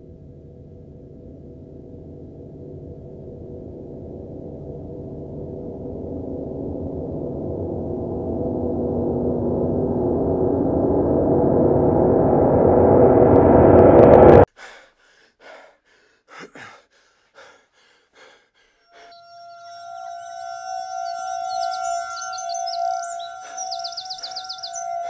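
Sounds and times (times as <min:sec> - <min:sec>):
gong-like drone: 0:00.0 - 0:14.4, 0:19.1 - 0:25.0.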